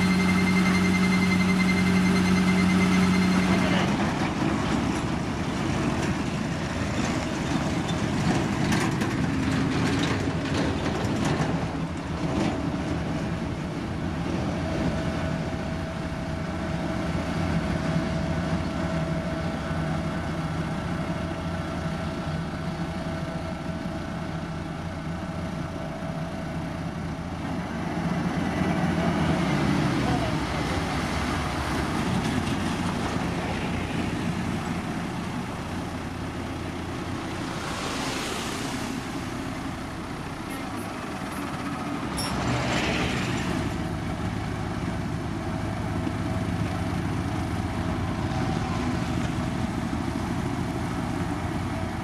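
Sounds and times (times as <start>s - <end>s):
steady high whine: 0.0s - 4.0s
machinery rattling and clanking: 0.0s - 15.0s
diesel machinery engine drone: 0.0s - 52.0s.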